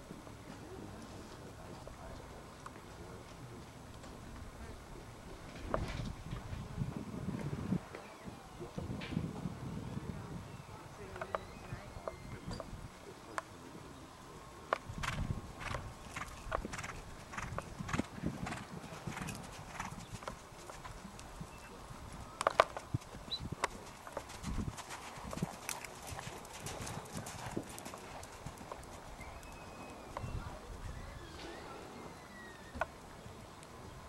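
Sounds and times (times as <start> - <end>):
horse hoofbeats on sand: 15.0 - 21.2, 22.7 - 29.5.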